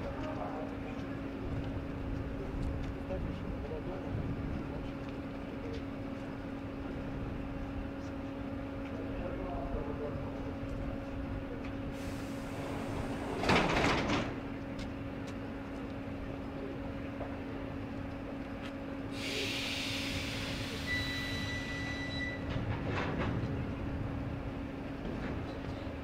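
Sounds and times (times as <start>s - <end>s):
electric train humming: 10.5s - 26.0s
air hiss: 19.1s - 21.4s
faint whistle: 20.7s - 22.4s.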